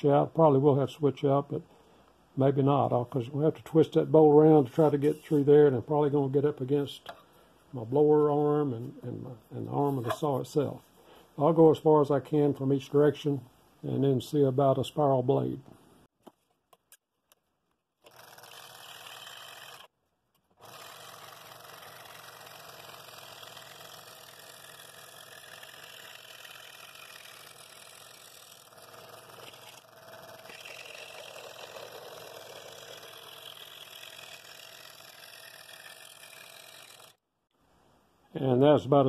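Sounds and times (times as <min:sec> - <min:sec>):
scroll saw cutting wood: 0:18.0 - 0:19.9, 0:20.5 - 0:37.2.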